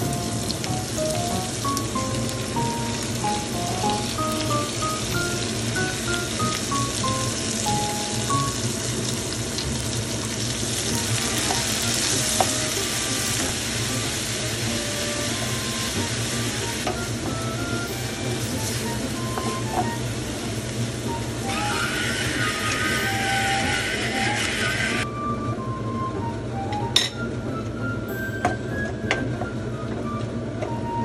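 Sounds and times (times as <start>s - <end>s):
food sizzling in a pan: 0.0s - 25.0s
spatula stir-frying: 0.0s - 25.0s
faint background music: 10.7s - 31.0s.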